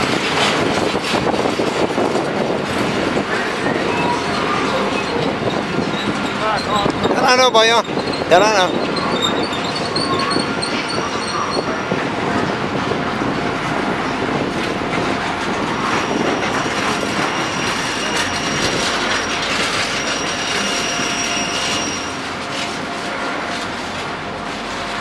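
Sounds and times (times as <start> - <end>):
train wheels on rails: 0.0 - 25.0
high wheel squeal: 3.2 - 13.3, 14.9 - 23.5.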